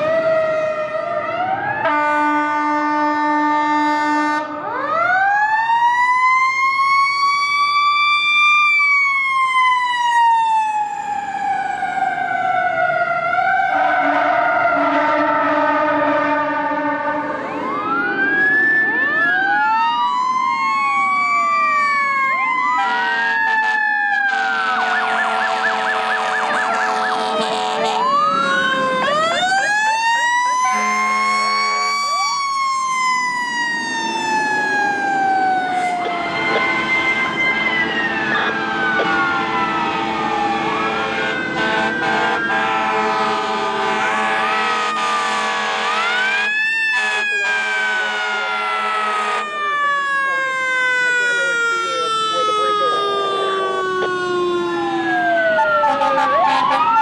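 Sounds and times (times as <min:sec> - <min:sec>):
fire engine siren wailing: 0:00.0 - 0:57.0
deep air horn blasts: 0:01.8 - 0:04.5, 0:13.8 - 0:17.3, 0:22.8 - 0:28.2, 0:30.6 - 0:32.1, 0:41.0 - 0:49.5.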